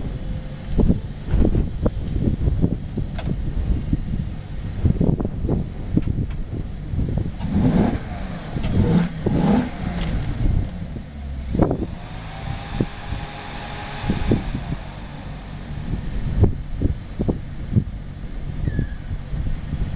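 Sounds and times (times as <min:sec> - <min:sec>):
low rumble: 0:00.0 - 0:19.9
roof mechanism whine: 0:07.4 - 0:18.6.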